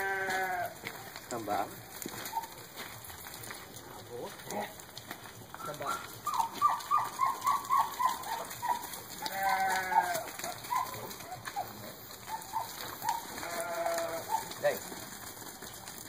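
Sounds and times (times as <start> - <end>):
sheep bleating: 0.0 - 0.8, 7.1 - 11.2, 13.0 - 14.5.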